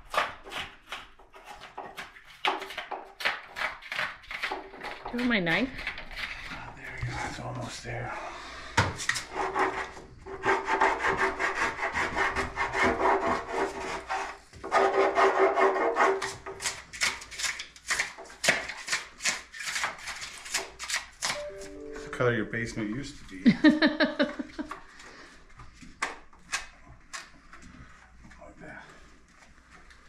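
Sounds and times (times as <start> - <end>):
knife sawing through foam: 9.1 - 21.0.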